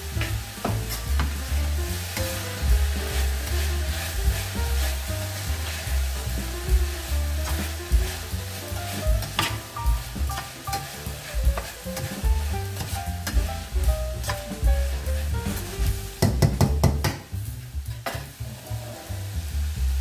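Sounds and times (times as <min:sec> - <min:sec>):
background music: 0:00.0 - 0:17.6
meat and vegetables sizzling: 0:00.0 - 0:20.0
spoon scraping a pan: 0:10.3 - 0:15.7.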